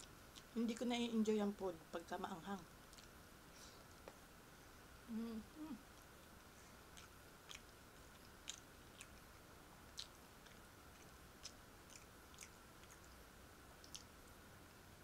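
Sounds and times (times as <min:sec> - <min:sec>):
person chewing food: 0:00.0 - 0:00.6, 0:02.9 - 0:03.2, 0:05.9 - 0:14.2
faint steady hiss: 0:00.0 - 0:15.0.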